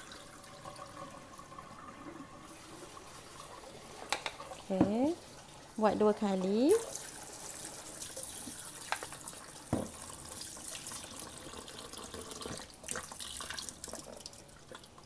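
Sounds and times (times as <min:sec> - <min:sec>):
tap running into a bowl: 0:04.0 - 0:05.1, 0:08.4 - 0:10.1, 0:11.5 - 0:13.2.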